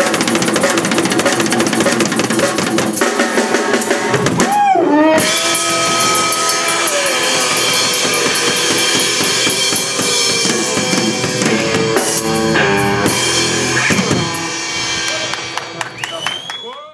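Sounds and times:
electric guitar: 0.0s - 16.4s
drum kit with busy cymbals: 0.0s - 16.5s
bass guitar: 3.9s - 16.5s.

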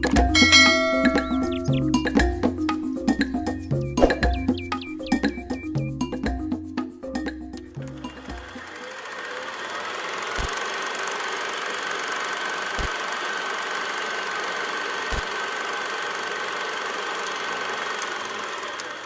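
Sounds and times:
low thumps: 3.2s - 6.5s
film projector whirring: 7.9s - 19.0s
sharp clicks: 10.4s - 10.6s.

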